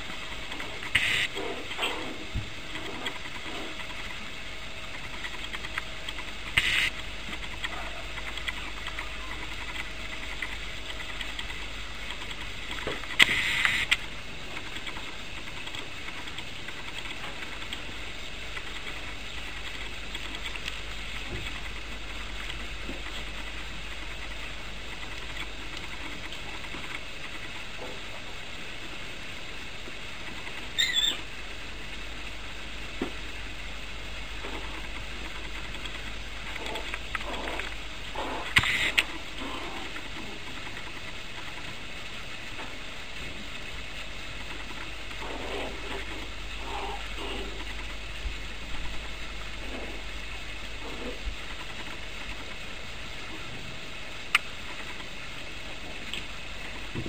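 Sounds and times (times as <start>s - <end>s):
steady background hiss: 0.0s - 57.0s
puppies yipping: 30.8s - 31.2s.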